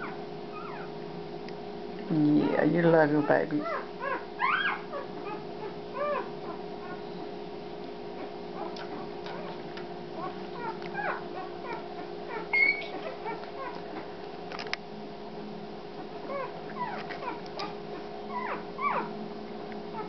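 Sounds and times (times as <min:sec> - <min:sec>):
puppies squeaking and whimpering: 0:00.0 - 0:00.9, 0:02.4 - 0:07.3, 0:08.2 - 0:14.1, 0:16.2 - 0:19.2
puppy sharp squeal: 0:00.0 - 0:00.9, 0:03.2 - 0:07.0, 0:10.2 - 0:13.7, 0:18.3 - 0:19.1
steady low hum: 0:00.0 - 0:20.0.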